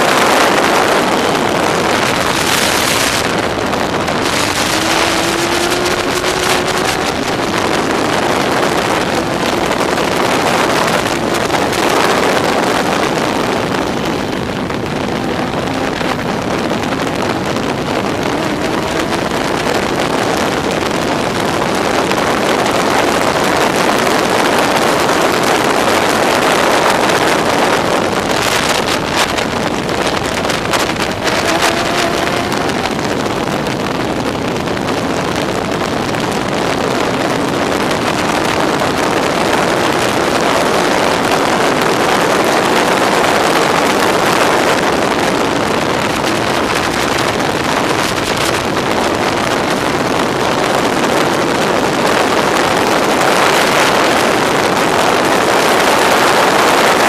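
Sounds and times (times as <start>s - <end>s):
race car engine revving: 0.0s - 57.0s
wind rushing over microphone: 0.0s - 57.0s.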